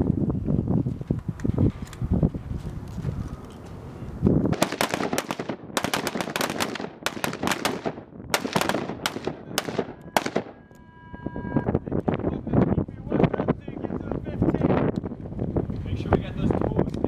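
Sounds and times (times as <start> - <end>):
rifle shots: 4.5 - 10.6.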